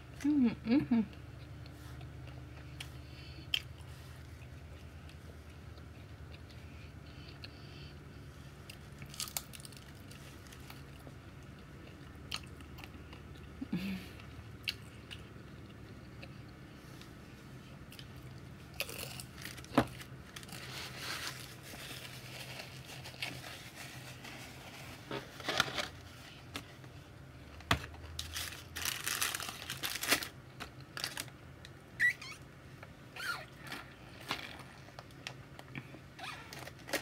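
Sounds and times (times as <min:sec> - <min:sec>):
chewing and crunching food: 0:01.1 - 0:31.7
food packaging crinkling: 0:09.0 - 0:11.0, 0:18.8 - 0:26.6, 0:27.5 - 0:31.4, 0:36.5 - 0:37.0
foil pouch crinkling: 0:18.8 - 0:26.1, 0:28.0 - 0:31.3.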